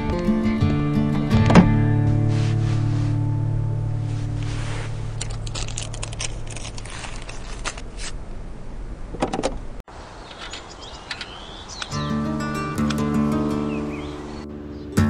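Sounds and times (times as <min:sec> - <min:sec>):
background music: 0:00.0 - 0:05.8, 0:12.0 - 0:15.0
cardboard and foam handling rustles: 0:04.0 - 0:08.2.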